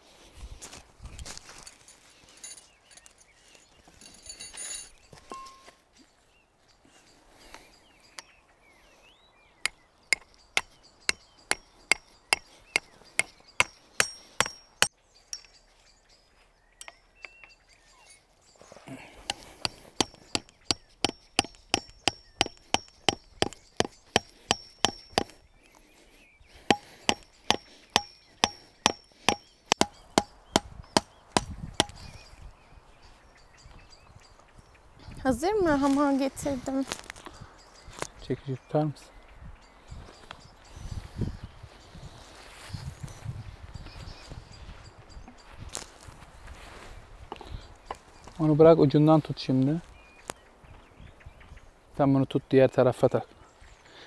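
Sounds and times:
hammer blows on metal: 19.3s - 25.4s, 26.7s - 32.0s.

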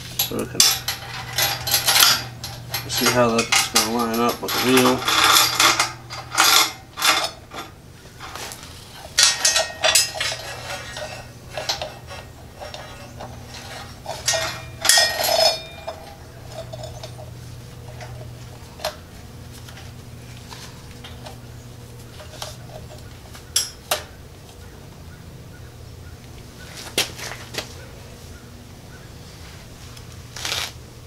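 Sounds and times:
metal chain links clinking: 0.2s - 18.9s.

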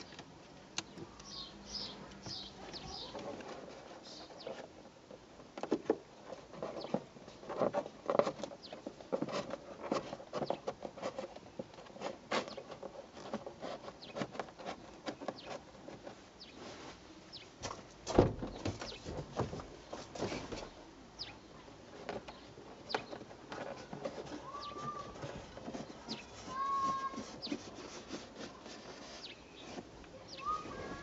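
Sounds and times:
fingers scratching plastic trim: 23.5s - 29.3s.

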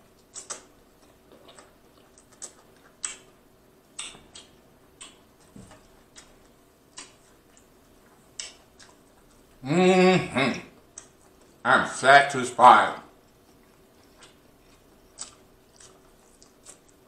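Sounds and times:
man chewing food: 0.0s - 9.7s, 10.3s - 11.7s, 13.1s - 17.0s
wet mouth smacks and clicks: 0.2s - 0.7s, 1.3s - 3.4s, 4.0s - 5.2s, 6.1s - 7.7s, 8.4s - 9.0s.

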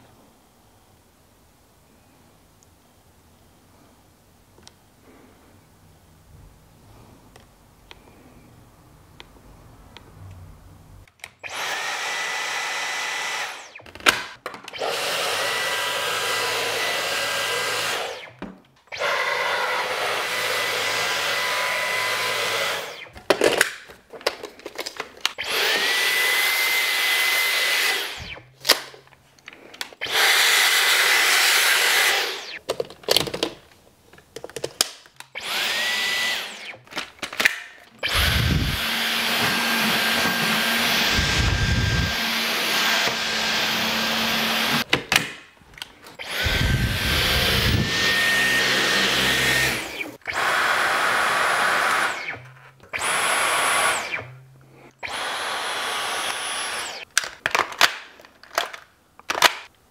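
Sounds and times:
vacuum cleaner motor whining: 11.4s - 23.2s, 25.3s - 28.4s, 30.0s - 32.6s, 35.4s - 37.0s, 38.0s - 44.9s, 46.2s - 57.1s.

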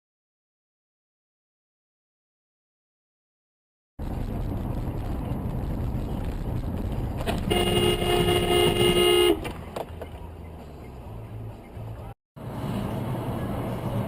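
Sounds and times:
road and engine rumble: 4.0s - 14.0s
car horn: 7.3s - 9.5s.

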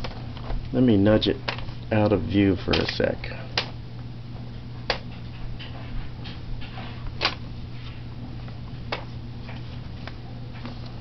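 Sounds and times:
steady low hum: 0.0s - 11.0s
paper rustling: 6.6s - 11.0s.

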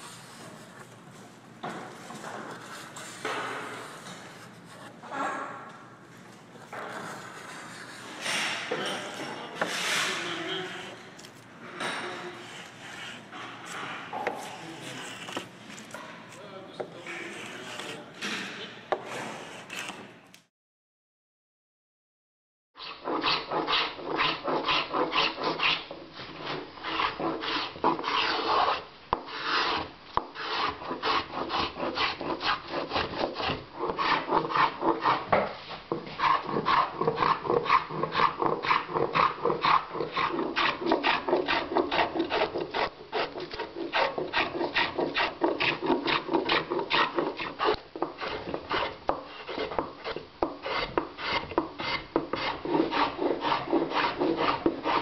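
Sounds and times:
travisher scraping wood: 12.0s - 16.1s, 16.9s - 20.1s, 22.8s - 55.0s.

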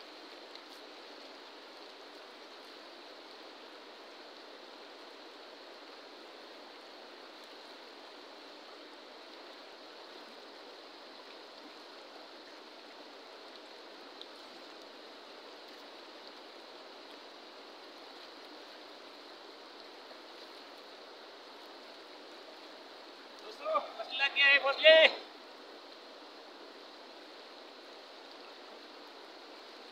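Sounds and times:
fast-flowing river rushing: 0.0s - 29.9s
faint tick: 14.2s - 14.9s.

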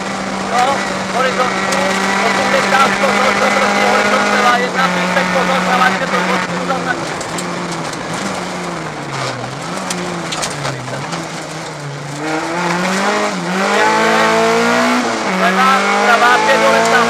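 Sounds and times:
rally car engine revving: 0.0s - 17.0s.

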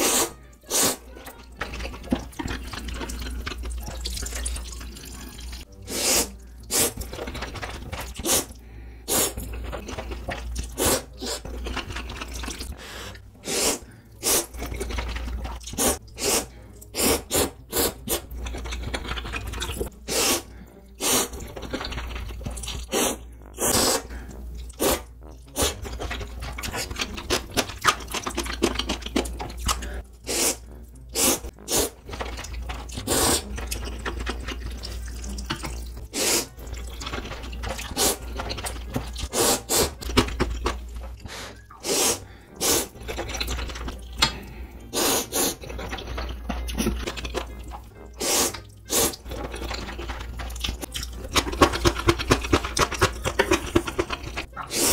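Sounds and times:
person slurping noodles: 0.0s - 1.2s, 1.9s - 54.9s
wet chewing: 13.4s - 54.9s.

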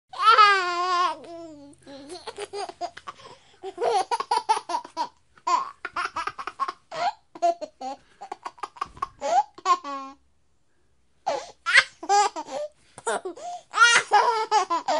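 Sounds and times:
baby laughing: 0.2s - 10.2s, 11.3s - 14.9s.

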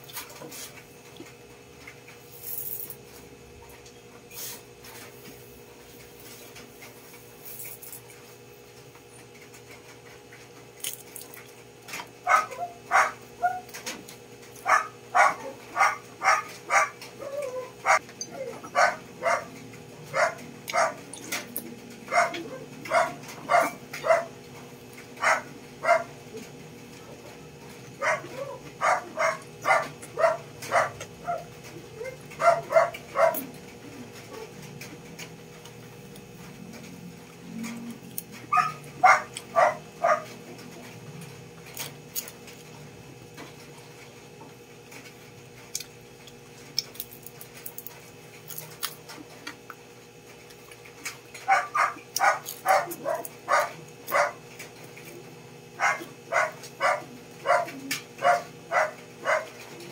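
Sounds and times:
dog barking: 12.2s - 13.7s, 14.6s - 17.0s, 17.8s - 18.0s, 18.6s - 19.5s, 20.1s - 21.1s, 22.1s - 24.4s, 25.2s - 26.1s, 28.0s - 33.5s, 38.5s - 40.4s, 51.4s - 54.4s, 55.8s - 59.6s.

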